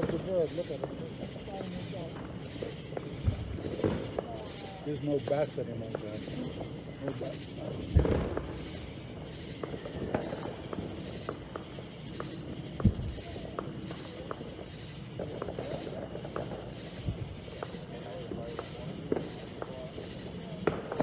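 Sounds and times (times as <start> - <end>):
distant fireworks popping: 0.0 - 21.0
high pulsing chirp: 0.0 - 21.0
firework boom: 7.8 - 8.8.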